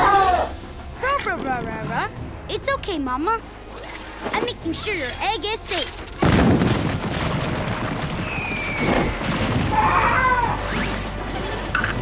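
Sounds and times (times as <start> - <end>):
music: 0.0 - 12.0
falling whistle-like tone: 8.3 - 9.3.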